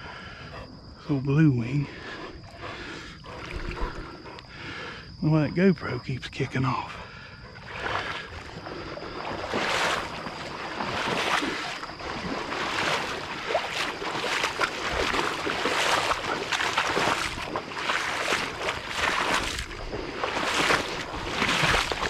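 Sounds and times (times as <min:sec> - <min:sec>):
water swishing and splashing: 0:02.0 - 0:05.2, 0:07.0 - 0:22.0.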